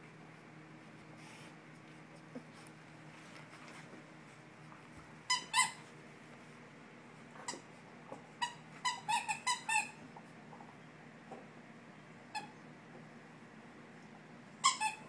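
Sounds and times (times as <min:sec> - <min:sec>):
dog squeaks: 0:05.3 - 0:05.8, 0:08.4 - 0:10.0, 0:14.6 - 0:15.0.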